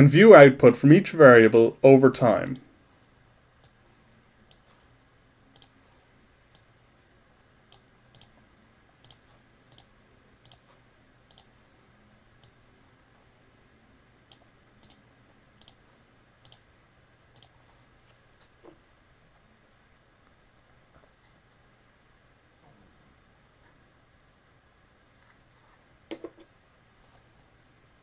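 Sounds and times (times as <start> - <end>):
faint low hum: 0.0 - 28.0
computer mouse clicks: 4.4 - 4.7, 5.5 - 5.8, 6.5 - 6.7, 7.7 - 8.4, 9.0 - 11.5, 14.3 - 15.0, 15.6 - 15.8, 16.4 - 16.6, 17.3 - 17.6.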